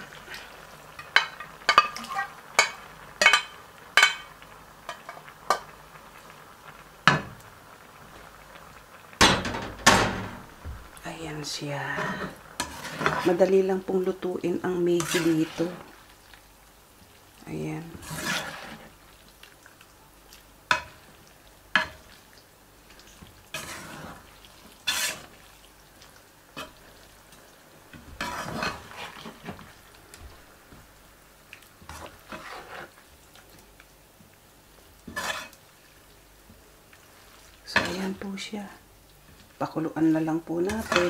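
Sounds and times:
spatula swishing noodles in broth: 15.0 - 16.4, 17.9 - 21.2, 21.8 - 27.1, 28.2 - 30.0, 31.5 - 33.9, 36.9 - 38.1.

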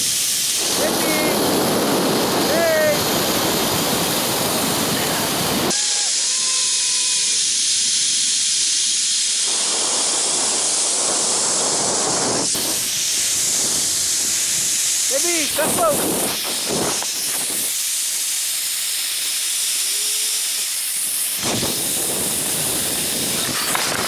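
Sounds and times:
rush of wind: 0.0 - 7.2, 9.4 - 17.8, 20.9 - 24.0
zipline trolley running on cable: 0.0 - 24.0.

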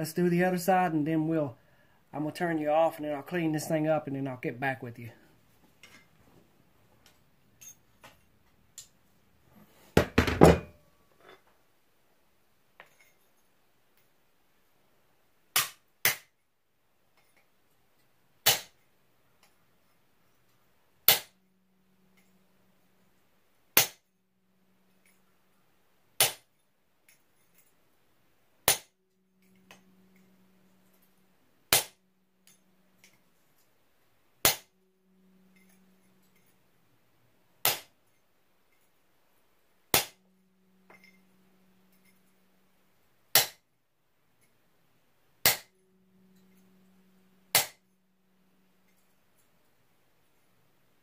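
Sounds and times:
hammer striking steel chisel: 40.9 - 41.3, 45.4 - 47.8.

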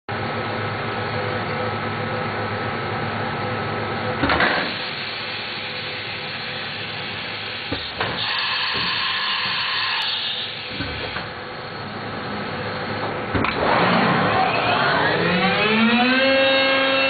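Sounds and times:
cnc router humming: 13.8 - 17.0.

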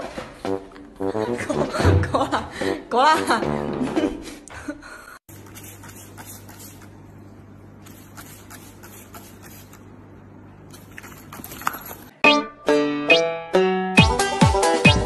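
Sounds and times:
spray bottle squirting: 5.3 - 7.0, 7.8 - 9.9, 10.7 - 12.1.

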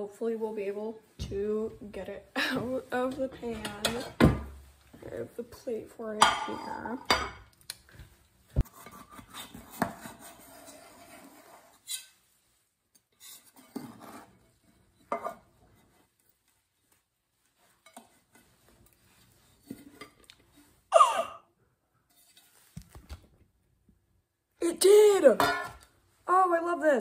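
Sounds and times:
knife scraping metal cake pan: 8.6 - 12.2, 13.1 - 16.0, 22.1 - 22.6.

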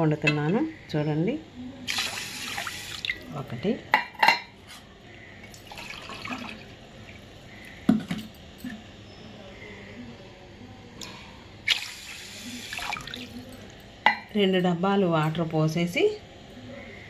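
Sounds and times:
water pouring into a pot: 1.9 - 3.4, 5.4 - 7.4, 11.6 - 13.8.

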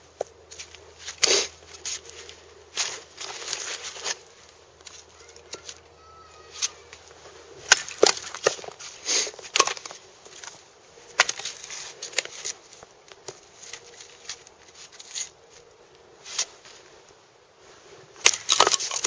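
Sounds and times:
hatchet chopping firewood: 7.6 - 8.8, 18.2 - 19.0.

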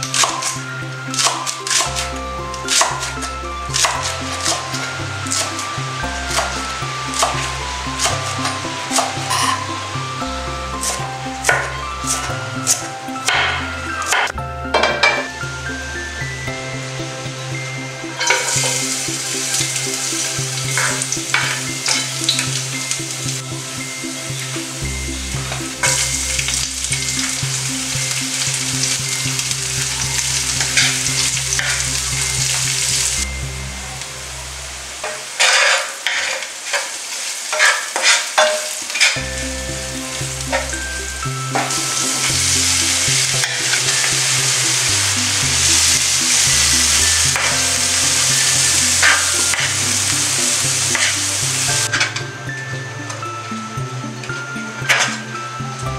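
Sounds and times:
onion and garlic sizzling in oil: 0.0 - 55.9
wooden spatula scraping pan: 6.3 - 9.7, 35.0 - 39.2.

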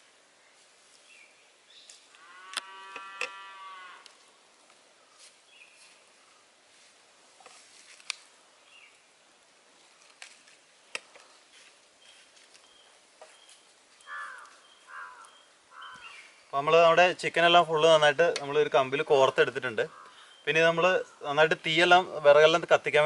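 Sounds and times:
cow mooing: 2.2 - 4.1
faint bird chirps: 12.0 - 16.6, 19.9 - 21.3.

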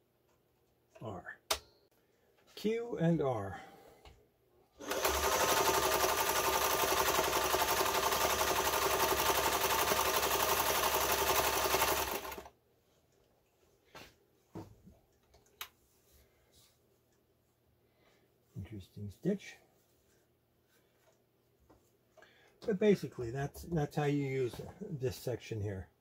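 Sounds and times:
sewing machine running: 4.8 - 12.5.

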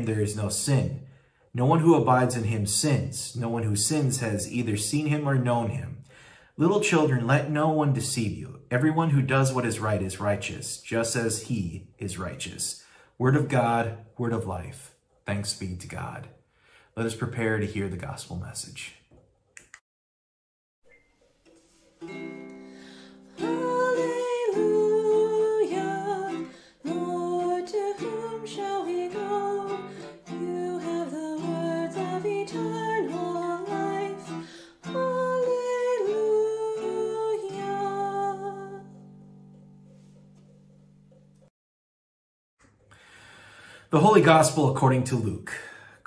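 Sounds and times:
strummed ukulele: 20.9 - 41.4
woman singing: 23.3 - 39.0.

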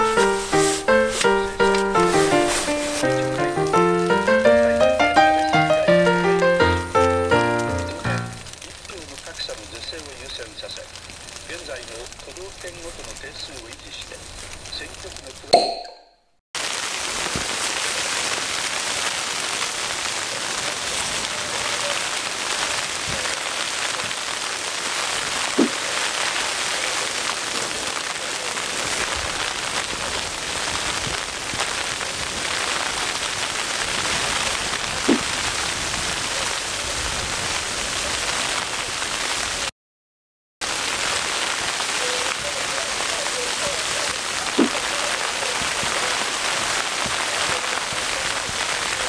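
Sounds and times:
ice pellets pattering on tent: 0.0 - 15.5, 16.6 - 39.7, 40.6 - 49.0.

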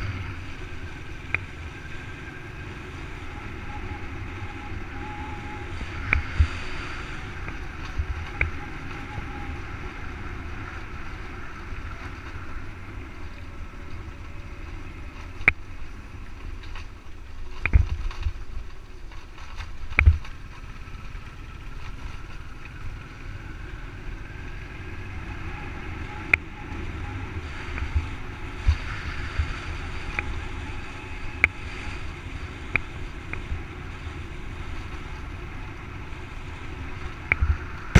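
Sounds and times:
wind rush: 0.0 - 12.8, 24.3 - 37.9
low road rumble: 0.0 - 37.9.

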